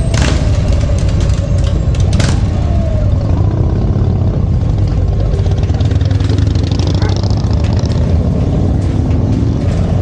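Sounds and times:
motorcycle engine droning: 0:00.0 - 0:10.0.

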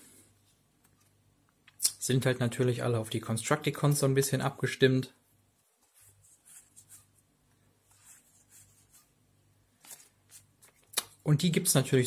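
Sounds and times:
cards rustling: 0:09.8 - 0:11.2.

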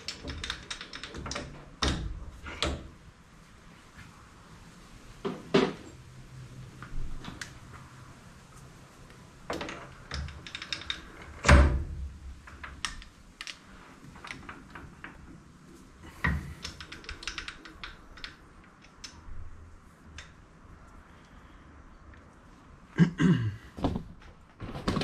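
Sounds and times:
metal lathe parts clunking: 0:09.5 - 0:11.8.

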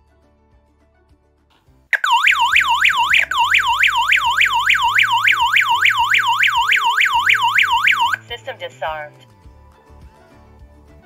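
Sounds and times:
alarm siren wailing: 0:02.0 - 0:08.5.

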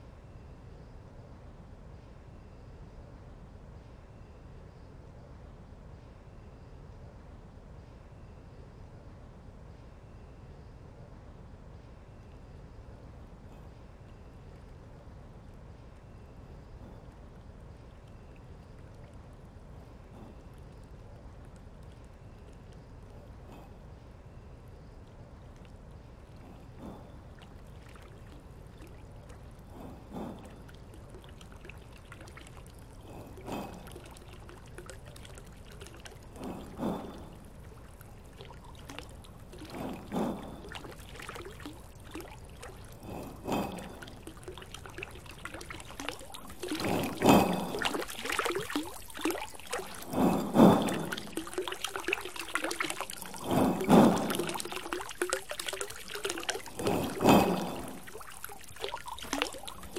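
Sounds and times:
faint steady hiss: 0:00.0 - 0:59.9
water splashing into a basin: 0:26.8 - 0:59.9.

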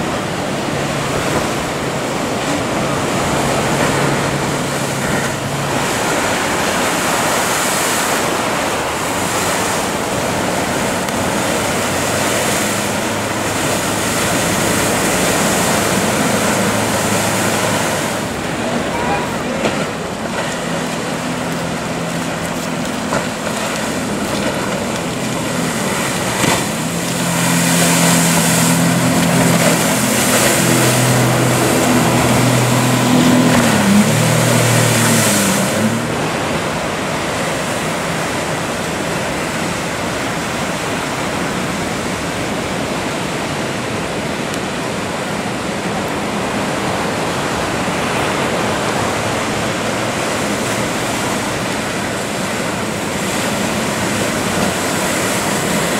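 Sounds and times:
breaking waves: 0:00.0 - 0:55.9
outboard motor drone: 0:00.0 - 0:55.9.

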